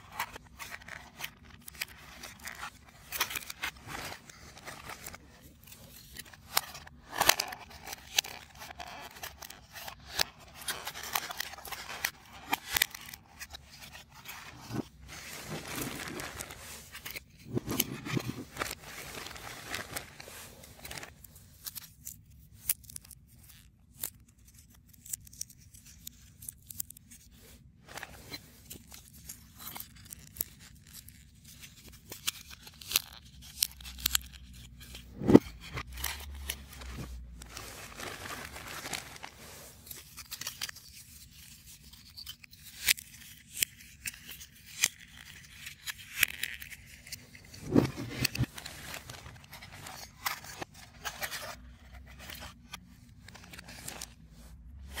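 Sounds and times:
puzzle pieces clicking and scraping: 0:06.3 - 0:18.8, 0:47.6 - 0:52.6.

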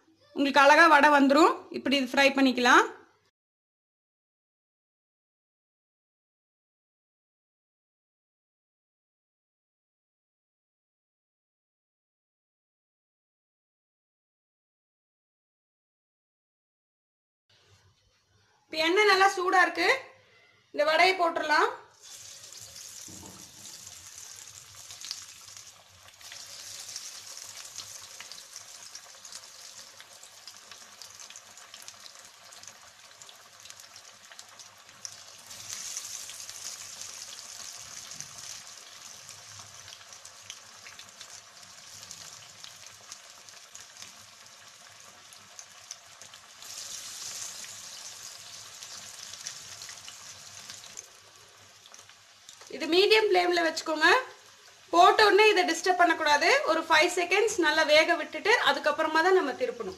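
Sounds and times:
food sizzling in hot oil: 0:21.9 - 0:59.9.

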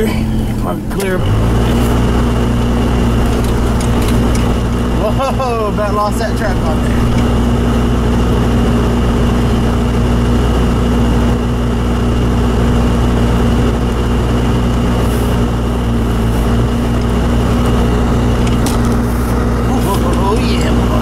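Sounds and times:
car engine running: 0:00.0 - 0:21.0
heater blower running: 0:00.0 - 0:21.0
road noise: 0:00.0 - 0:21.0.

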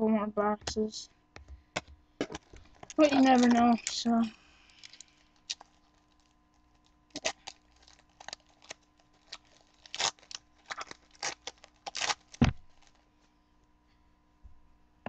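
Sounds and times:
wrapper tearing and crinkling: 0:02.2 - 0:13.0.

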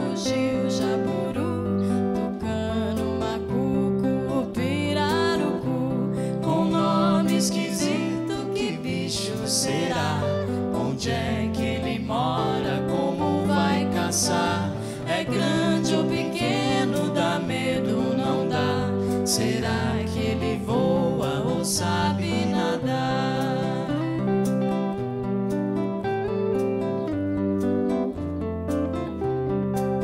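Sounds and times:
guitars strumming: 0:00.0 - 0:30.0
voices singing: 0:04.3 - 0:24.4.

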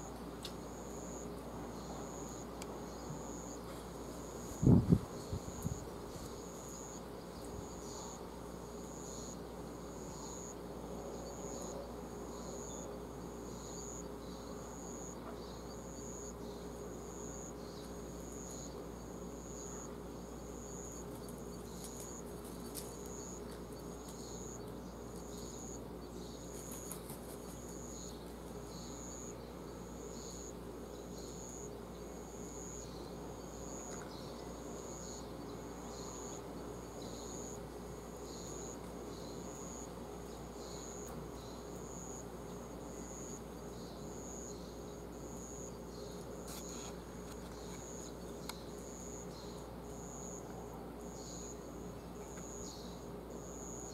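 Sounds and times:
faint background hum: 0:00.0 - 0:53.9
insect chirping: 0:00.0 - 0:53.9.

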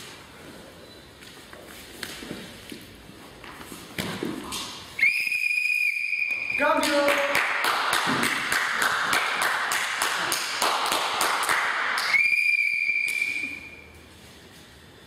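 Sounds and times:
high whistle note: 0:05.0 - 0:06.6, 0:12.1 - 0:14.0.

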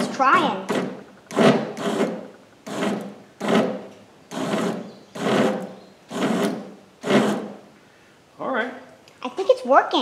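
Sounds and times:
electric motor grinding: 0:00.0 - 0:07.6.

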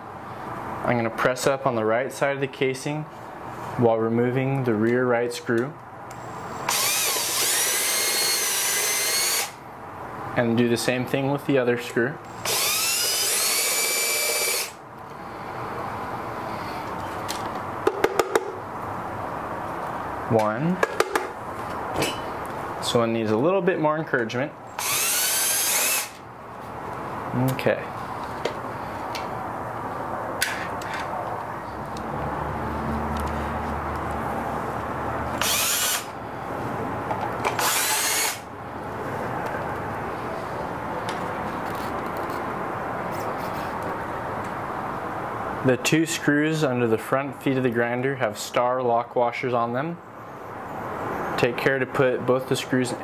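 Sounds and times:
cordless drill motor whine: 0:06.1 - 0:09.6, 0:12.3 - 0:14.8, 0:24.8 - 0:26.2, 0:35.4 - 0:36.1, 0:37.5 - 0:38.4.

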